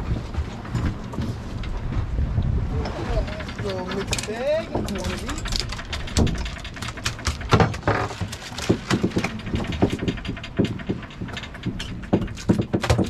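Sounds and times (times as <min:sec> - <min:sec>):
low rumble of boat and sea: 0:00.0 - 0:13.0
fish flopping on metal deck: 0:03.2 - 0:13.0.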